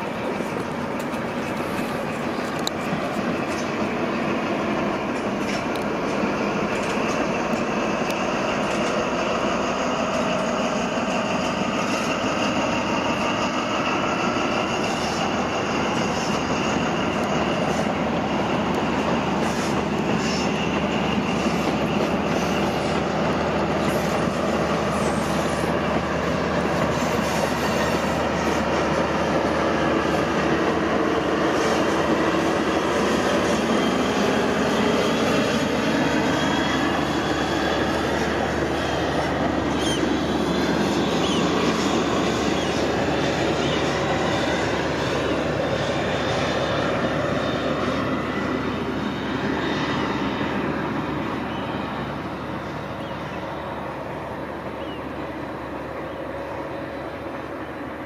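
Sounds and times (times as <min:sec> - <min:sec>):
high whine of train: 0:00.0 - 0:58.0
train wheels rumbling on rails: 0:00.0 - 0:58.0.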